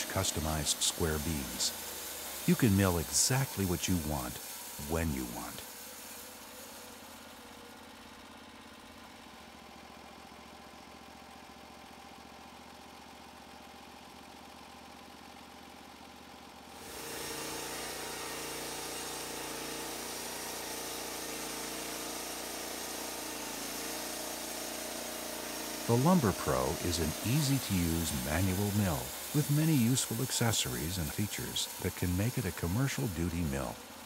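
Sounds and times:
band sawmill sawing log: 0.0 - 9.2, 16.7 - 34.0.

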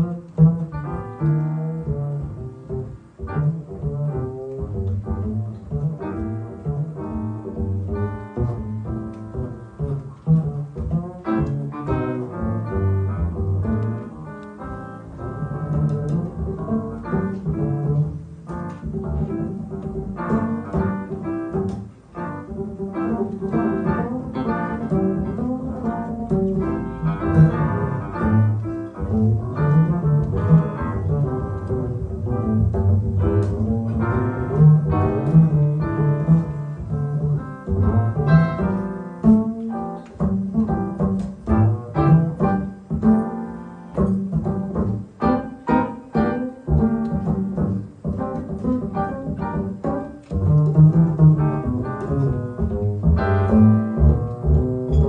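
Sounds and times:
double bass plucked: 0.0 - 55.0
piano chords: 0.0 - 55.0.

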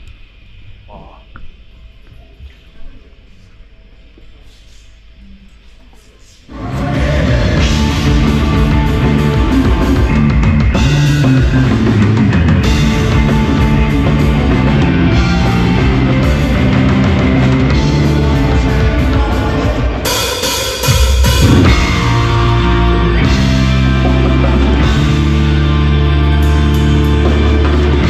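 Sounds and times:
drum kit: 6.5 - 28.0
electric bass: 6.5 - 28.0
electric guitar: 6.5 - 28.0.

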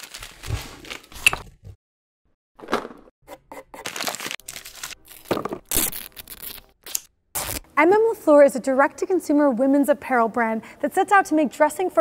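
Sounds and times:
paper and cardboard crinkling: 0.0 - 1.2, 3.8 - 6.7.

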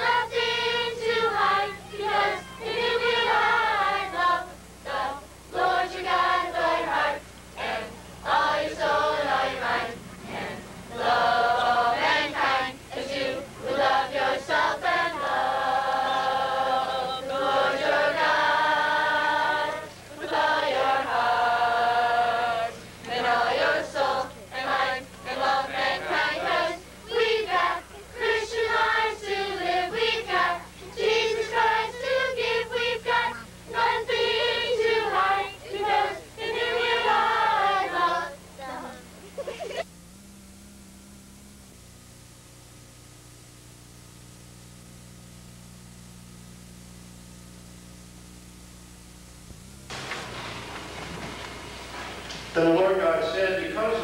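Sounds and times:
children singing together: 0.0 - 39.8.

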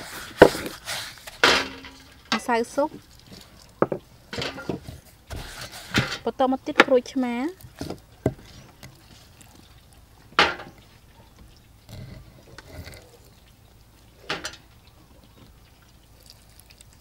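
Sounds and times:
pestle mashing wet paste: 0.0 - 10.9.

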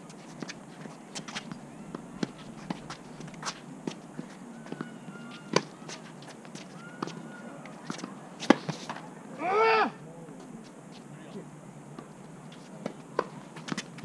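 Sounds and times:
player shouting: 9.4 - 10.0.

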